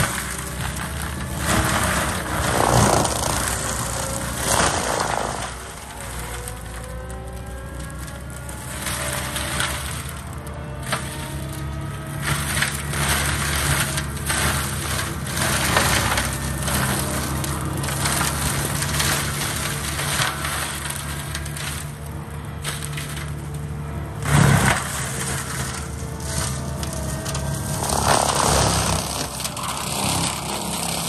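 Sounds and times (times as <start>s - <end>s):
engine hum: 0.0s - 31.0s
forestry mulcher grinding wood: 0.0s - 31.0s.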